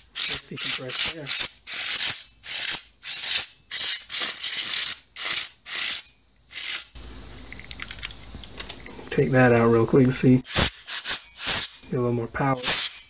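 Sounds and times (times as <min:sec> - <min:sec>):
compressed air bursts hissing: 0:00.0 - 0:07.5, 0:10.4 - 0:11.9, 0:12.5 - 0:13.0.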